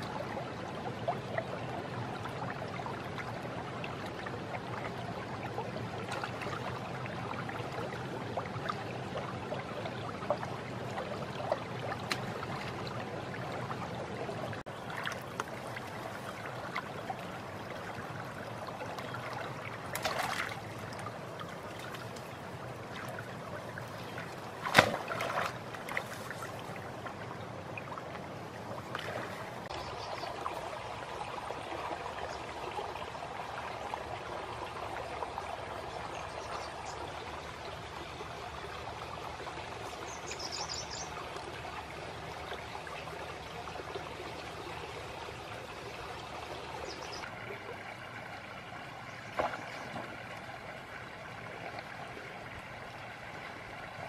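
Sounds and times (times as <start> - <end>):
water rushing in a stream: 0.0 - 54.0
person wading through water: 14.4 - 29.7.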